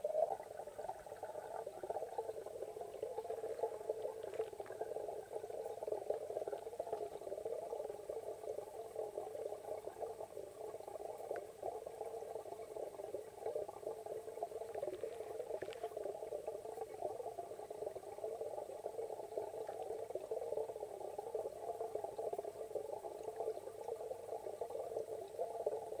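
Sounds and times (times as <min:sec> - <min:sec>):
muffled underwater fluttering: 0:00.0 - 0:21.5
faint clicks: 0:11.2 - 0:11.6, 0:14.6 - 0:16.1.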